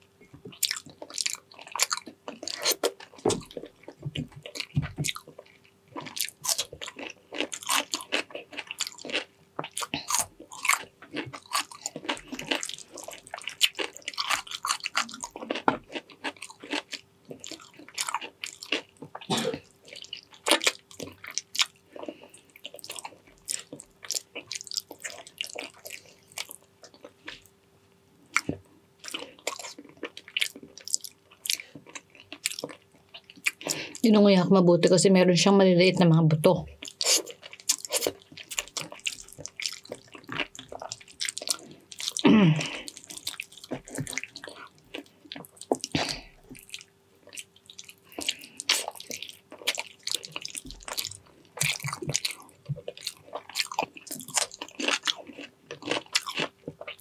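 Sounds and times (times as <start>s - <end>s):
chewing with mouth clicks: 0.5s - 27.5s, 28.3s - 34.0s, 36.8s - 57.0s.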